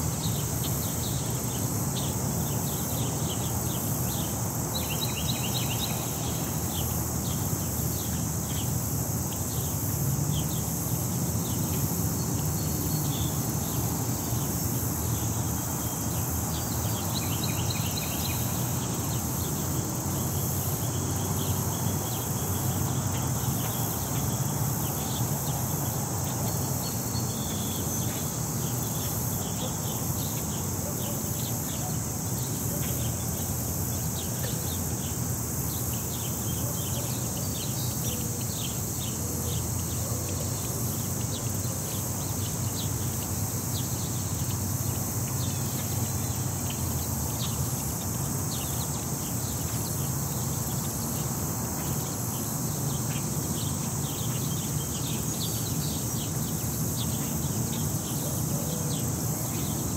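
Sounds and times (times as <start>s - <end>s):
insects singing drone: 0.0s - 59.9s
low rumble of city traffic: 0.0s - 59.9s.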